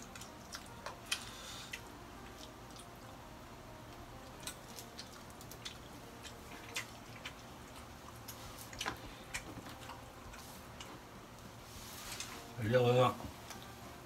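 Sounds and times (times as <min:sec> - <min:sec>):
mouths chewing: 0:00.0 - 0:03.1, 0:03.9 - 0:11.4.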